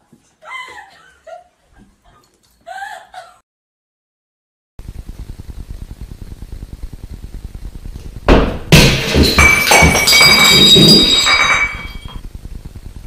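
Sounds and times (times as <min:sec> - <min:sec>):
clattering with ringing tones: 0:08.8 - 0:12.2.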